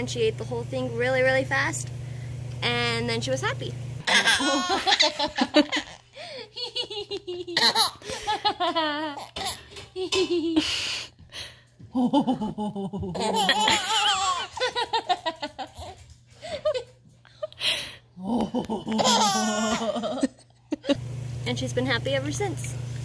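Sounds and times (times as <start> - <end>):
woman laughing: 4.1 - 9.3, 10.0 - 11.0, 11.9 - 21.0
baby laughing: 4.1 - 10.6, 12.2 - 16.0, 18.6 - 20.9.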